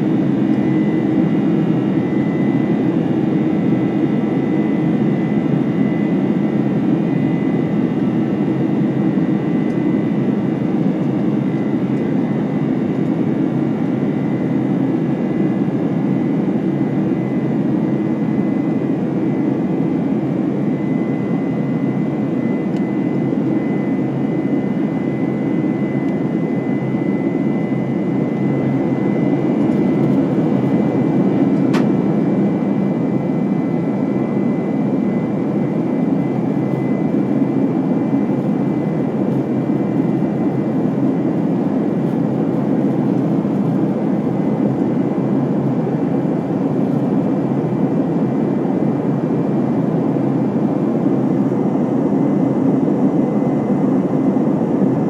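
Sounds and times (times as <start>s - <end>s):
jet cabin rumble: 0.0s - 47.3s
high jet engine whine: 0.0s - 55.0s.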